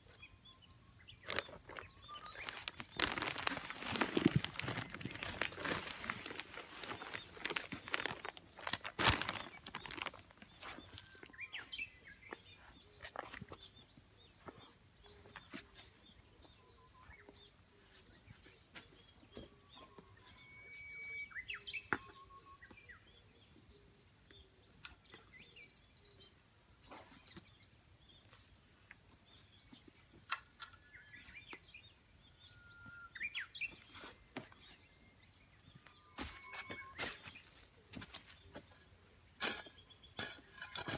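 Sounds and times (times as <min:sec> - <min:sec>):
plastic sack rustling: 0:01.2 - 0:11.0
rubber boot footsteps on soil: 0:01.3 - 0:11.9.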